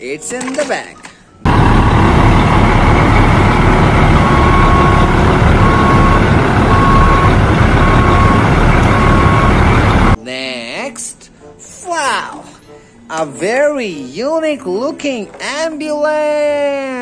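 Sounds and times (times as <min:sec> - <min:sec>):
truck engine running: 0:01.4 - 0:10.2
reversing alarm beeps: 0:04.0 - 0:10.2.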